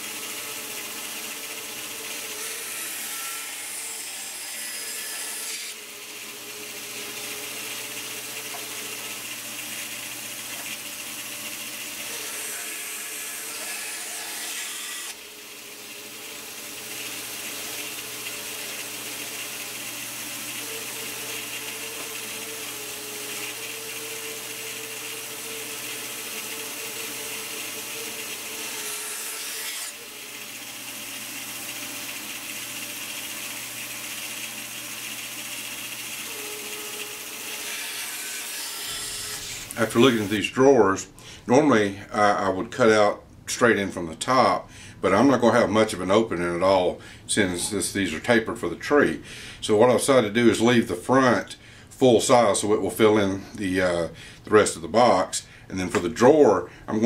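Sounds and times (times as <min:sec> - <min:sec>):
bandsaw blade cutting wood: 0:00.0 - 0:40.5
bandsaw running: 0:00.0 - 0:40.7.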